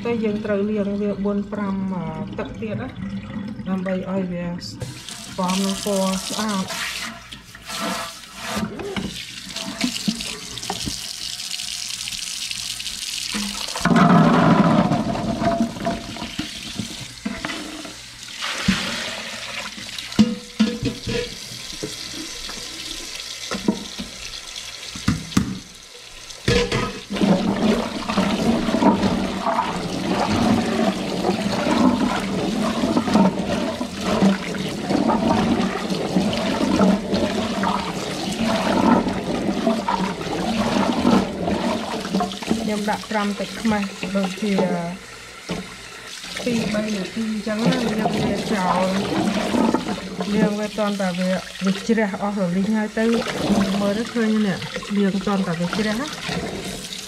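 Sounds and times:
tap water running into a sink: 0:00.0 - 0:57.0
splashing of water and fruit: 0:26.4 - 0:44.6, 0:46.2 - 0:52.0.

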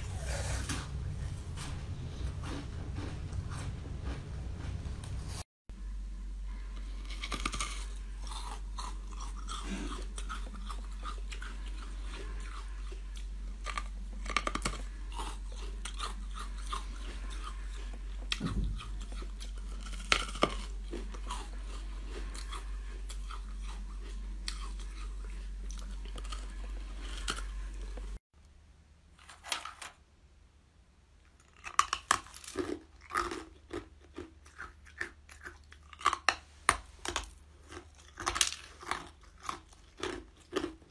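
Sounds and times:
steady low hum: 0:00.0 - 0:29.3
crunching and chewing ice: 0:06.5 - 0:28.2, 0:31.2 - 0:40.9.

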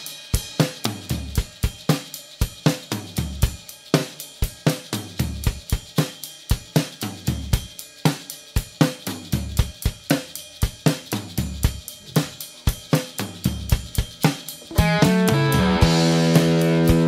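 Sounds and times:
rock drum kit beat: 0:00.0 - 0:17.0.

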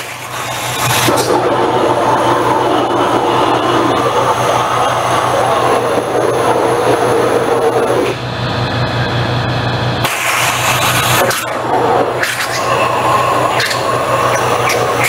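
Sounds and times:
waterjet cutter hiss: 0:00.0 - 0:15.0
low hum: 0:00.2 - 0:15.0.

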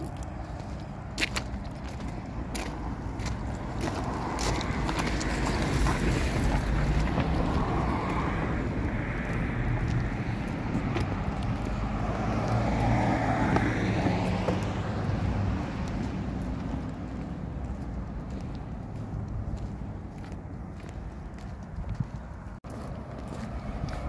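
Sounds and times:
wind rumbling on microphone: 0:00.0 - 0:24.0.

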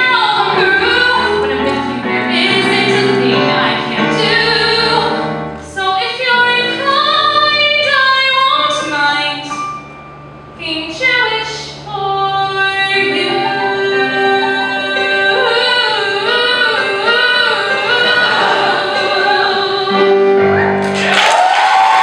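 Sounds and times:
woman singing with vibrato: 0:00.0 - 0:09.6, 0:10.6 - 0:20.6
cheering and applause: 0:20.5 - 0:22.0.

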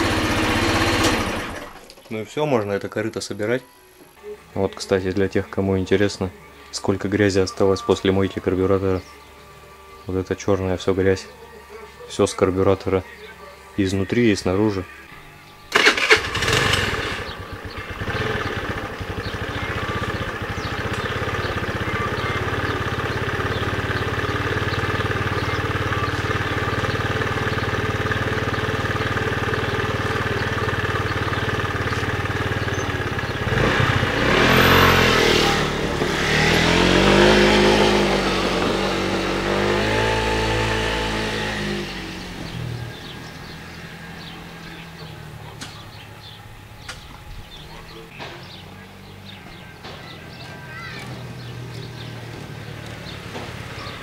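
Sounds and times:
moped engine starting and running: 0:00.0 - 0:02.4, 0:15.4 - 0:54.0.

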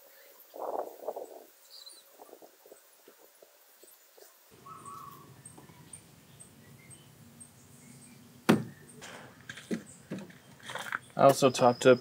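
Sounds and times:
sharp knock: 0:08.5 - 0:08.8.

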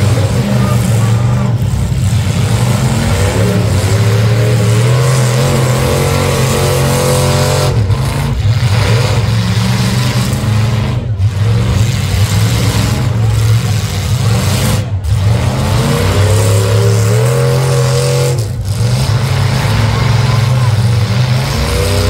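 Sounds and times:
car engines revving: 0:00.0 - 0:22.0.

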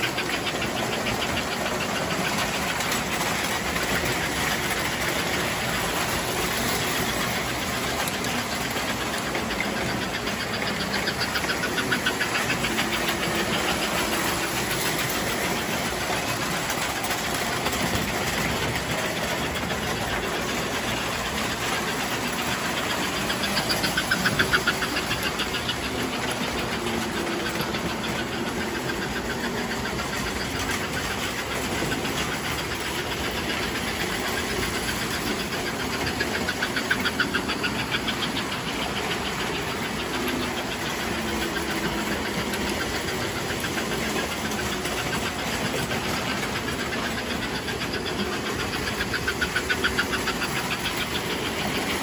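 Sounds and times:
rapid clicking: 0:00.0 - 0:52.0
toy train motors rumbling: 0:00.0 - 0:52.0.

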